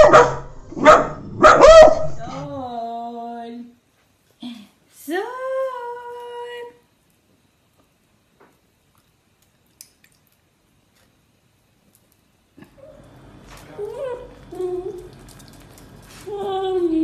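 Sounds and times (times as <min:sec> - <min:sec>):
person humming: 0:13.7 - 0:15.1, 0:16.2 - 0:17.0.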